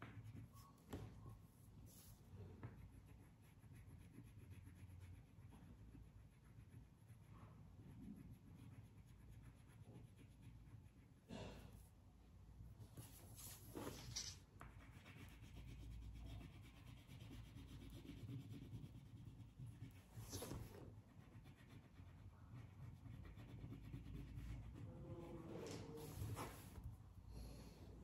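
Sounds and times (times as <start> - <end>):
crayon scratching on paper: 13.0 - 26.8.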